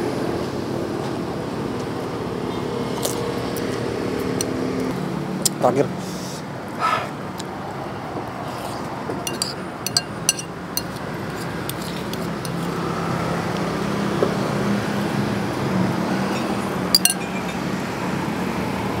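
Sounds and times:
spoon clinking against ceramic bowl: 0:09.3 - 0:12.7, 0:17.0 - 0:17.4.

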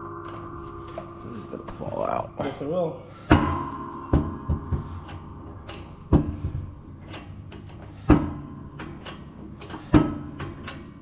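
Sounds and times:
sharp metallic clunks: 0:03.2 - 0:11.0.

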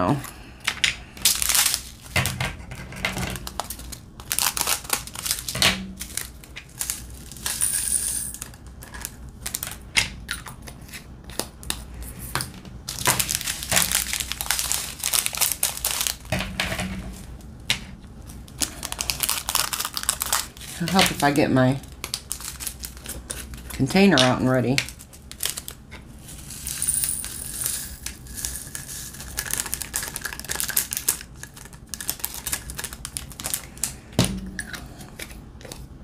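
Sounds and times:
plastic packets crinkling: 0:01.2 - 0:02.2, 0:03.3 - 0:07.6, 0:08.3 - 0:09.8, 0:12.8 - 0:16.4, 0:18.2 - 0:34.1
scissors cutting plastic packet: 0:03.4 - 0:07.5, 0:12.9 - 0:16.3, 0:18.5 - 0:25.8, 0:28.5 - 0:34.0.

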